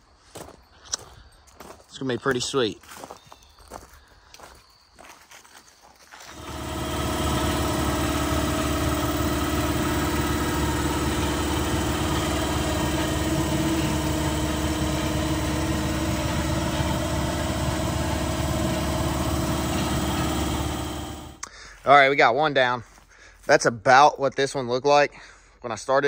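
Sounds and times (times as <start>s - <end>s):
power polisher motor: 6.3s - 21.4s.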